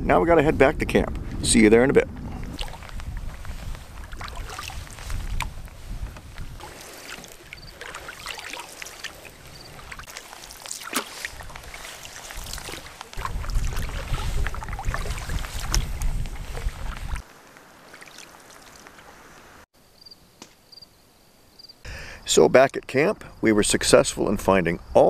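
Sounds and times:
wind rumble on microphone: 0:00.0 - 0:06.7, 0:11.2 - 0:17.2
water lapping at hull: 0:02.2 - 0:19.4
water splashing off paddle: 0:02.3 - 0:17.2.

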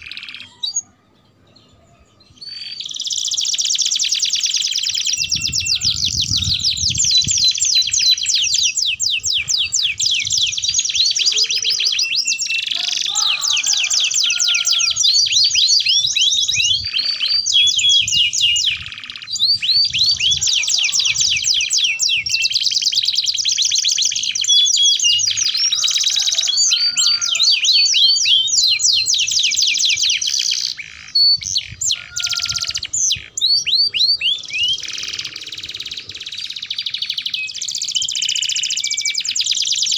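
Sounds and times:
canaries singing trills: 0:00.0 - 0:39.9.

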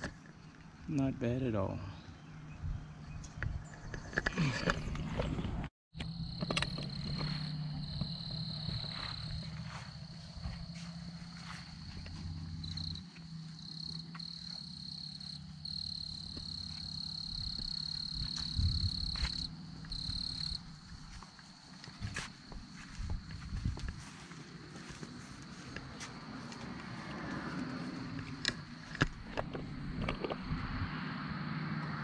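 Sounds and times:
insects trilling: 0:06.0 - 0:31.4.

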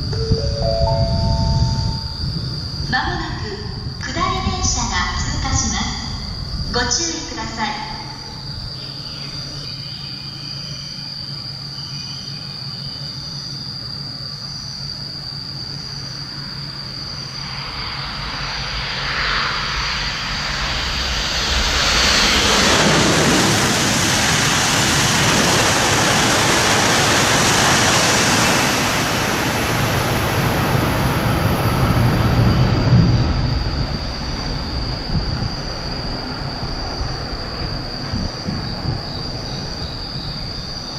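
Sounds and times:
low rumble: 0:00.0 - 0:06.9, 0:30.6 - 0:39.4
train passing at high speed: 0:00.0 - 0:40.9.

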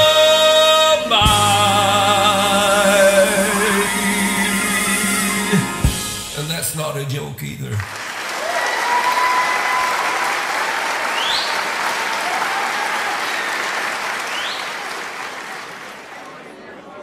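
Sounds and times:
audience applauding: 0:07.7 - 0:16.4.

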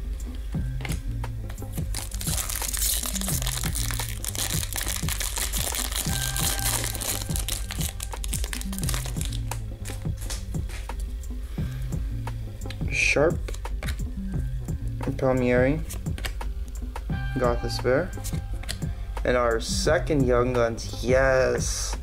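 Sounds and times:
background music: 0:00.0 - 0:22.0
foil wrapper crinkling: 0:01.8 - 0:10.4.

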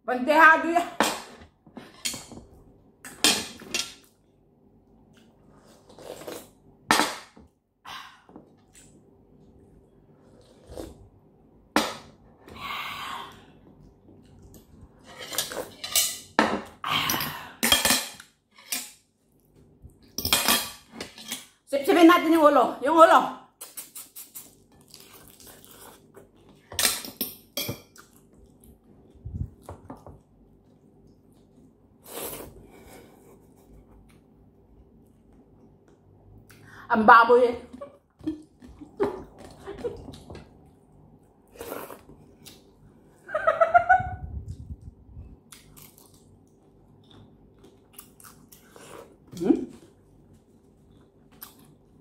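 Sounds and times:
sucking and chewing: 0:23.6 - 0:26.6.

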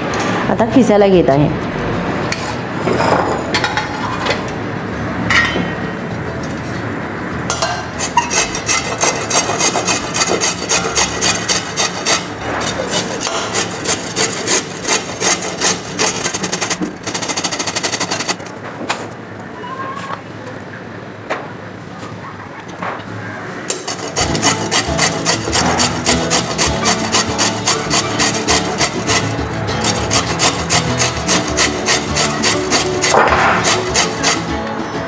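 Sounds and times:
carrot rasping on a metal grater: 0:08.0 - 0:18.5, 0:23.7 - 0:34.6.

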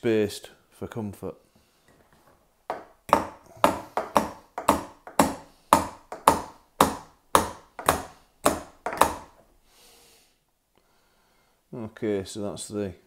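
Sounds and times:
hammer tapping metal clips: 0:02.7 - 0:09.4.

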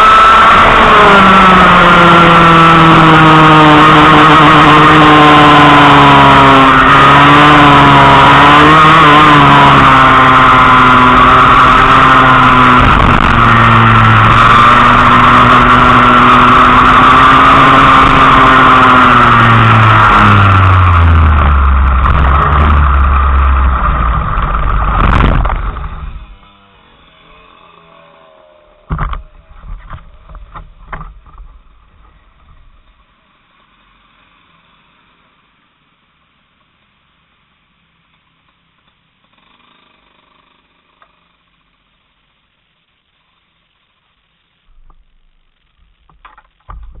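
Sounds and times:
kart engine running: 0:00.0 - 0:35.1, 0:39.2 - 0:41.5
sharp knocks: 0:28.9 - 0:31.6.

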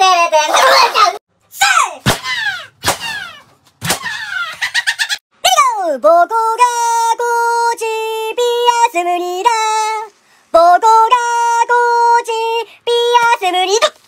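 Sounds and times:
high-pitched singing voice: 0:05.4 - 0:14.0.

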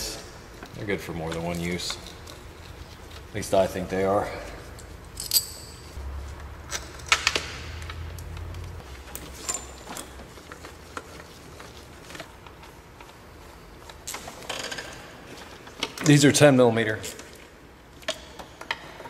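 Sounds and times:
metal parts clicking: 0:04.7 - 0:05.9.

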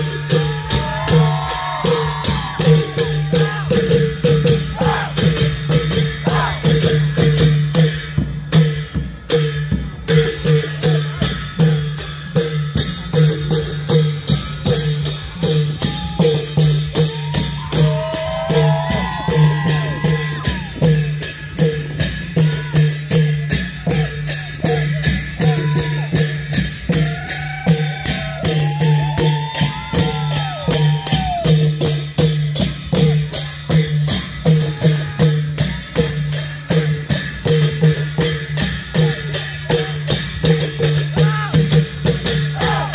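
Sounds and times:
long drums playing steady rhythm: 0:00.0 - 0:42.9.

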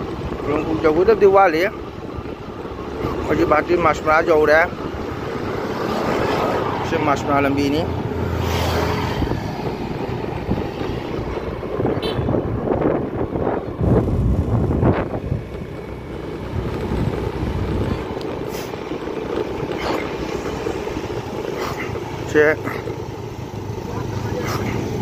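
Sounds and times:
wind buffeting microphone: 0:00.0 - 0:07.2, 0:07.8 - 0:25.0
moving vehicle road noise: 0:00.0 - 0:25.0.

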